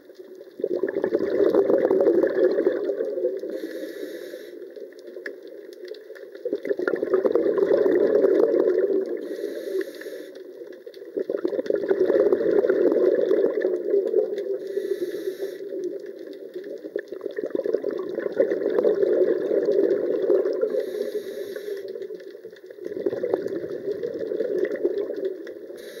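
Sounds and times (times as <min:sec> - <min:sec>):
exhaled bubbles underwater: 0:00.0 - 0:26.0
regulator hiss: 0:03.5 - 0:04.6, 0:09.2 - 0:10.4, 0:14.6 - 0:15.8, 0:20.7 - 0:21.9, 0:25.8 - 0:26.0.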